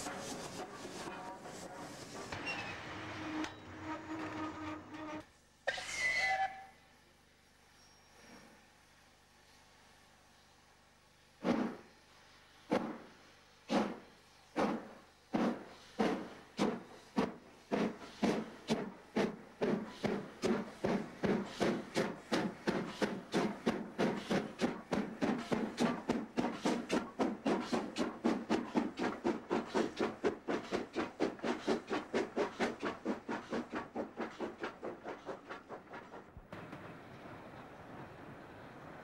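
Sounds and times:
steam locomotive exhaust beats: 9.4s - 39.0s.

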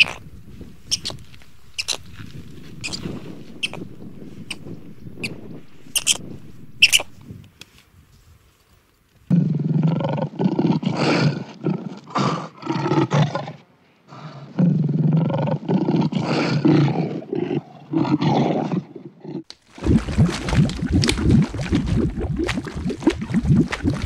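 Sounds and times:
crackling sound: 19.5s - 24.0s.

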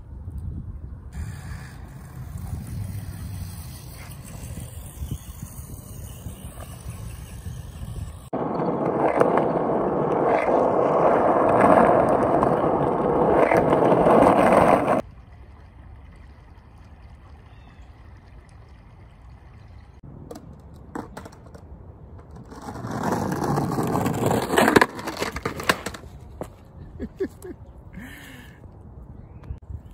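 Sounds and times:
skateboard wheels rolling on asphalt: 0.0s - 15.1s, 20.0s - 28.4s
stream trickling faintly: 15.0s - 20.0s.

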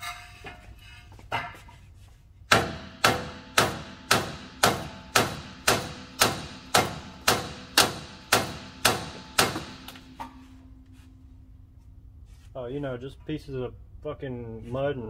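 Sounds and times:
hammer striking steel: 2.5s - 10.7s.

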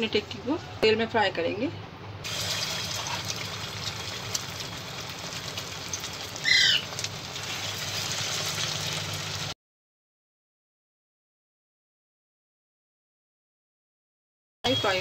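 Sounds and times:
food sizzling in oil: 2.2s - 9.6s, 14.7s - 15.0s.

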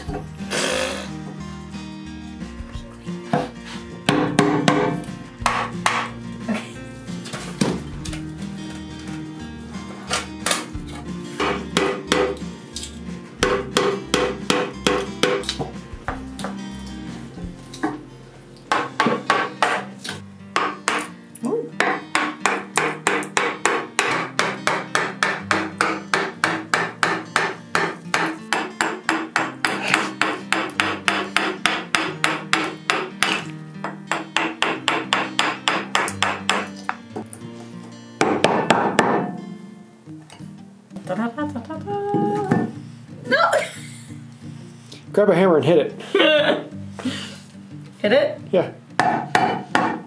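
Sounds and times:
mallet striking a chisel: 4.1s - 6.1s, 11.4s - 12.4s, 13.4s - 15.7s, 18.7s - 19.9s, 20.6s - 21.1s, 21.8s - 36.7s, 38.2s - 39.4s, 49.0s - 50.0s.

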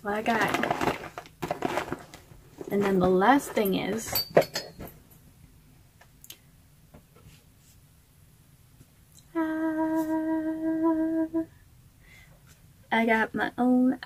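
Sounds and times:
woman humming: 9.3s - 11.5s.

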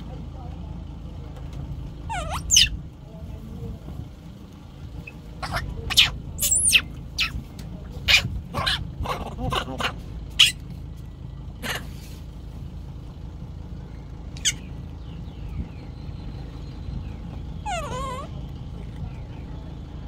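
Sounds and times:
steady low rumble: 0.0s - 20.0s
high-pitched squeaks and chirps: 2.1s - 2.8s, 5.0s - 7.5s, 10.3s - 10.6s, 14.4s - 14.8s, 17.6s - 18.4s.

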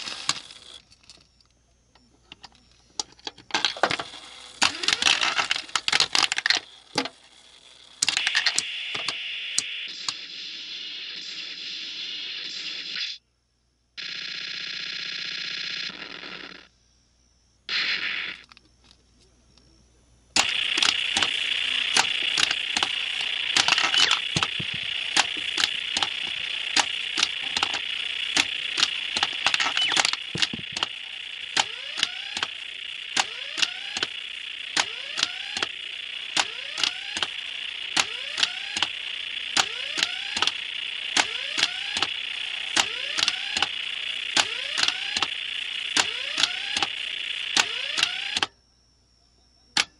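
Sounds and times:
pachinko machine hiss: 0.0s - 0.7s, 3.6s - 13.2s, 20.4s - 48.5s
brief machine tone: 8.1s - 10.2s, 20.4s - 48.6s.

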